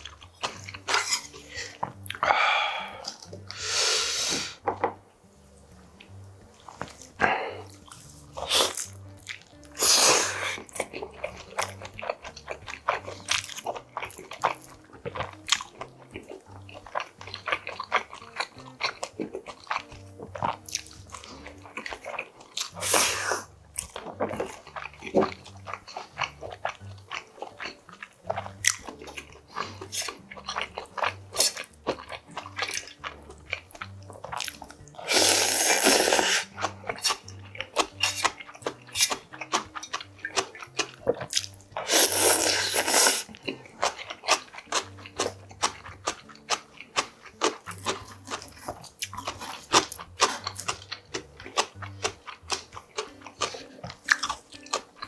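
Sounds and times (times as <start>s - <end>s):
wet chewing: 0.0s - 3.7s, 5.3s - 55.0s
noodle slurping: 9.7s - 10.7s, 22.7s - 23.5s, 34.8s - 46.3s.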